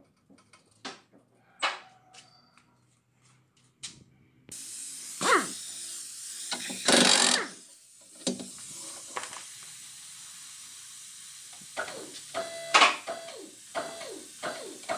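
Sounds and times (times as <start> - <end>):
air hiss: 4.5 - 14.9
pneumatic impact wrench bursts: 4.5 - 14.9.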